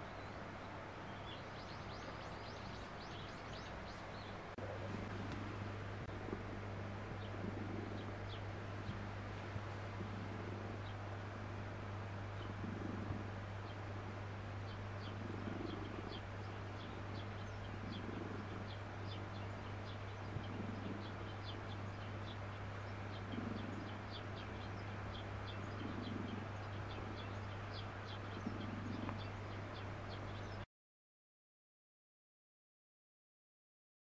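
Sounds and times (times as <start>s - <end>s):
low hum: 0.0s - 30.6s
cat purring: 4.6s - 11.0s, 12.3s - 13.4s, 15.0s - 29.4s.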